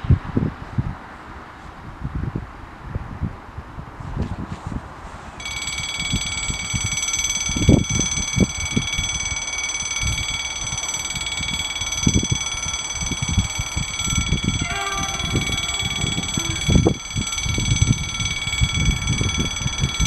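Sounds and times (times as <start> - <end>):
high-pitched electronic alarm: 5.4 - 20.0.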